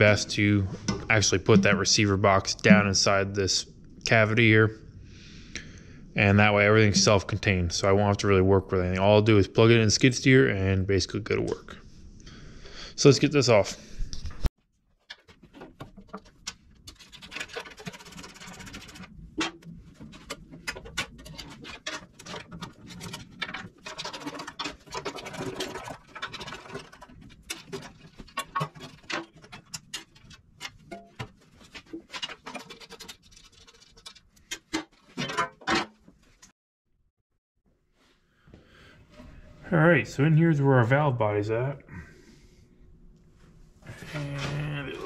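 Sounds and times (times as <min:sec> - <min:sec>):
metal scraping and knocking: 0:00.0 - 0:03.2, 0:06.7 - 0:07.6, 0:15.1 - 0:36.5.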